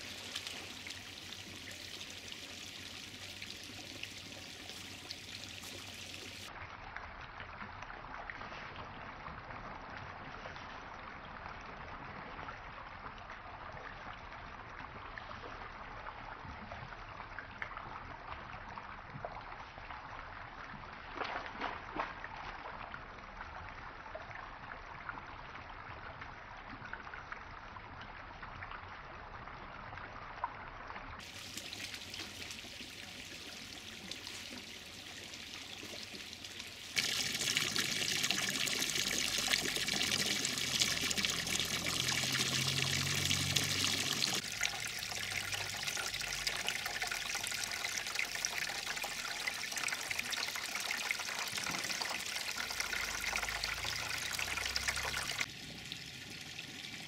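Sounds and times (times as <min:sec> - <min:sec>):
fountain jet splashing: 0:00.0 - 0:06.5, 0:31.2 - 0:57.0
water trickling into pond: 0:00.0 - 0:57.0.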